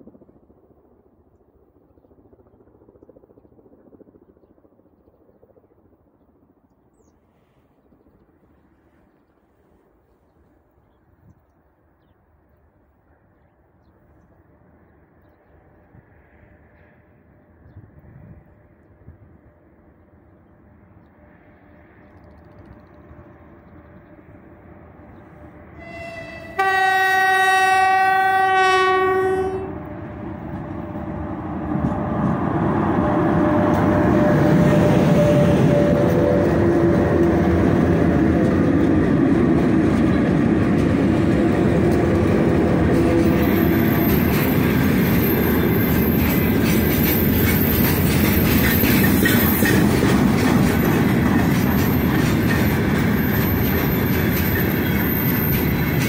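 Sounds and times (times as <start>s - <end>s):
locomotive horn blast: 25.8s - 30.0s
train wheels clicking over rail joints: 29.8s - 56.0s.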